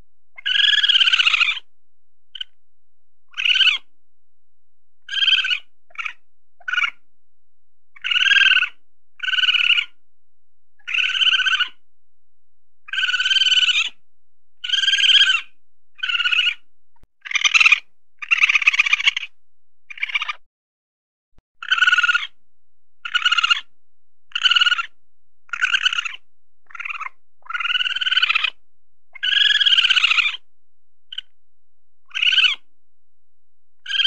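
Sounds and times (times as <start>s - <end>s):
weasel squealing calls: 0.4s - 1.7s, 3.3s - 3.9s, 5.1s - 7.0s, 8.0s - 10.0s, 10.8s - 11.8s, 12.9s - 14.0s, 14.6s - 16.6s, 17.2s - 20.4s, 21.6s - 22.4s, 23.0s - 23.7s, 24.3s - 30.5s, 31.1s - 31.3s, 32.0s - 32.7s.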